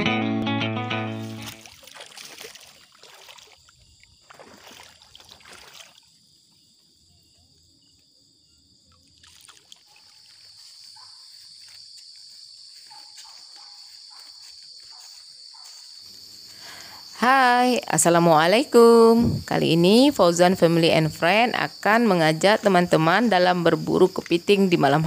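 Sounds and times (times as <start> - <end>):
night insects chirring: 1.0 - 25.0
splashing in shallow water: 1.2 - 6.2, 8.9 - 10.8.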